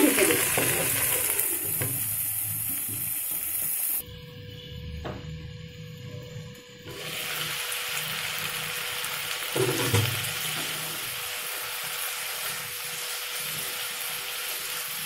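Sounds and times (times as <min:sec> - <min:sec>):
vegetables sizzling in hot oil: 0:00.0 - 0:04.0, 0:06.9 - 0:15.0.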